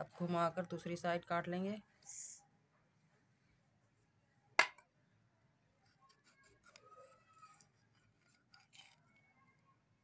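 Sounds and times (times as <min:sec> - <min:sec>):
knife cutting potato: 0:05.9 - 0:09.0.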